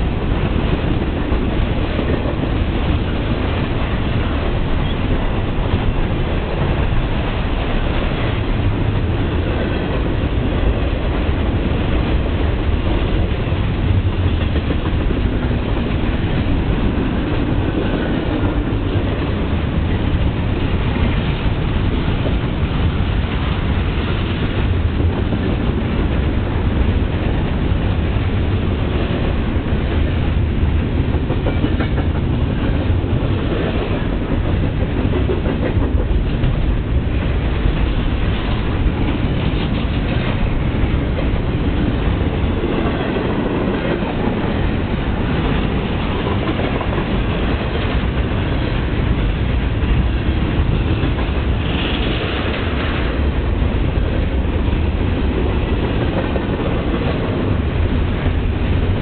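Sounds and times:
freight train rumbling past: 0.0s - 59.0s
wheels clacking on rails: 0.0s - 59.0s.

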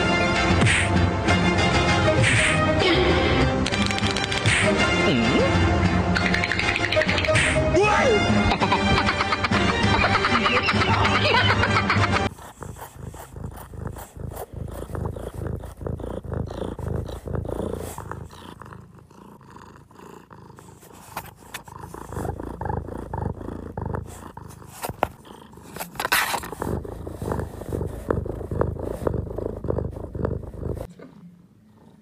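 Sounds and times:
cat purring: 8.5s - 32.0s.

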